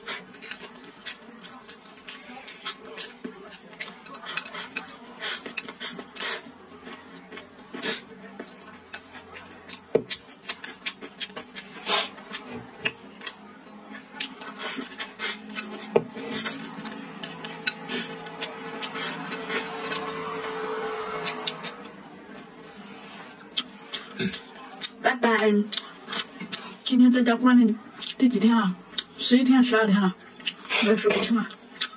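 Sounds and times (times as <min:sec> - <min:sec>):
chopsticks scraping a bowl: 0:00.0 - 0:08.1, 0:14.2 - 0:21.9
chewing and slurping: 0:00.0 - 0:22.0, 0:22.6 - 0:26.9.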